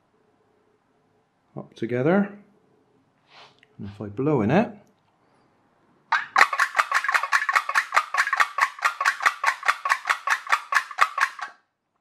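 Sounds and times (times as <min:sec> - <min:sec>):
rapid sharp clicks: 0:06.1 - 0:11.6.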